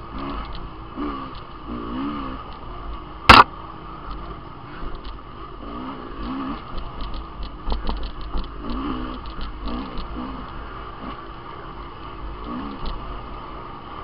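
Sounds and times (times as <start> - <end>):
dirt bike engine revving: 0.0 - 2.5, 3.2 - 3.5, 5.6 - 6.8, 8.5 - 11.3, 12.3 - 13.6
bike knocking and rattling: 2.4 - 5.4, 6.2 - 11.3, 12.4 - 13.1.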